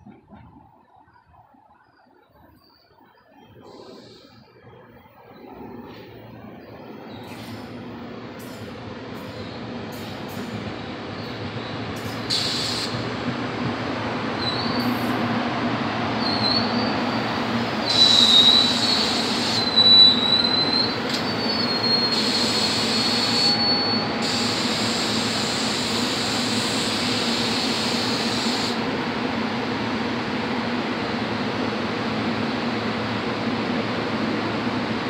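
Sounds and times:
train brakes squealing: 0:03.5 - 0:04.6, 0:08.4 - 0:10.5, 0:11.2 - 0:13.0, 0:14.4 - 0:15.2, 0:16.2 - 0:28.8
standing train humming: 0:03.7 - 0:35.0.

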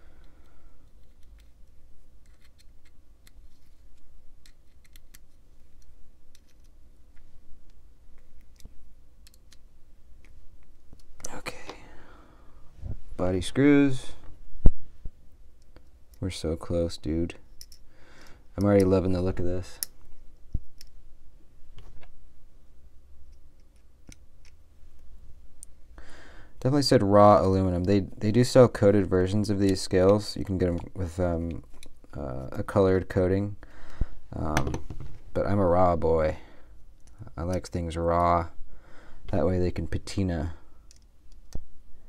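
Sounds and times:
metal clicks and taps: 0:04.4 - 0:09.6, 0:17.6 - 0:17.8.

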